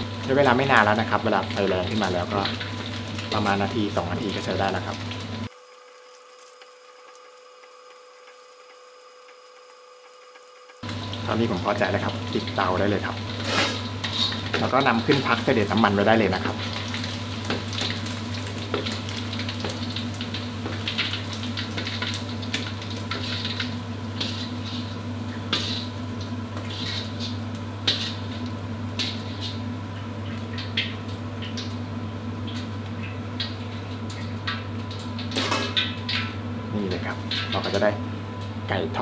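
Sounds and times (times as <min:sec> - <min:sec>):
frying oil sizzling: 0:00.0 - 0:39.0
low electrical hum: 0:00.0 - 0:39.0
wire strainer scraping a wok: 0:13.3 - 0:16.8, 0:20.6 - 0:29.6.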